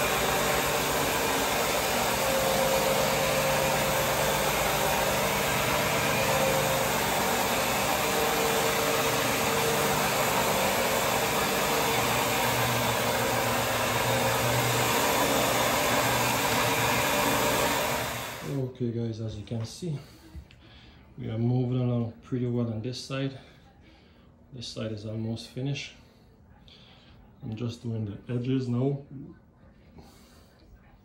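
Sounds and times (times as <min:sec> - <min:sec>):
brushes scrubbing linoleum floor: 0:00.0 - 0:18.2
floor machine motor droning: 0:00.0 - 0:18.6.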